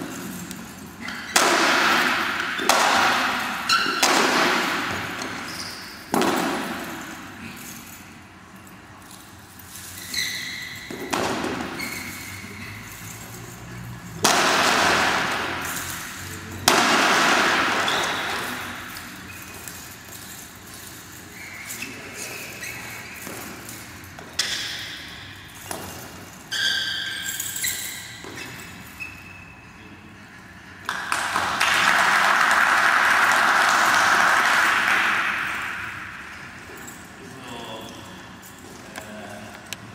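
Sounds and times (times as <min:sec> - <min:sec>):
chain weapon clinking: 0:00.0 - 0:29.7, 0:35.1 - 0:39.8
sharp echoing strikes: 0:14.2 - 0:18.9
applause: 0:30.9 - 0:35.9.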